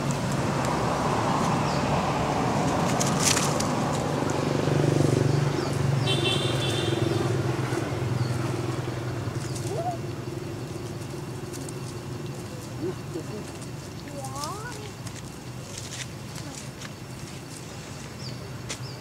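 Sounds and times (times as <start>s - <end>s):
vehicle engine passing: 0.0s - 14.0s.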